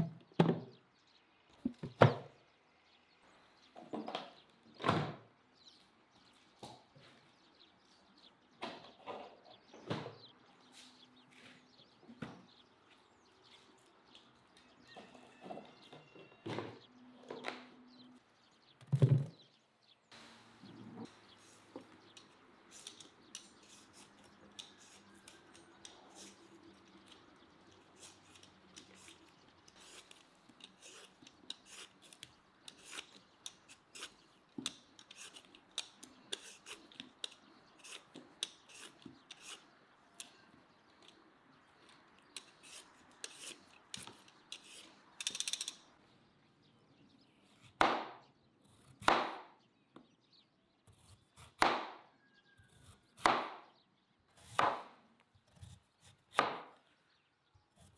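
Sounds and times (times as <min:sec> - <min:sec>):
peeler scraping beetroot skin: 0:22.7 - 0:40.4, 0:42.3 - 0:45.0
knife cutting on wooden board: 0:28.0 - 0:40.3, 0:42.3 - 0:44.8.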